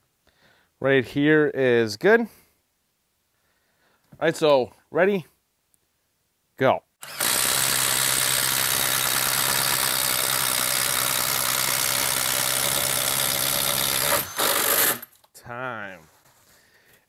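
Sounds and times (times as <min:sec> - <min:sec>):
impact driver drilling wood: 0:07.0 - 0:15.2.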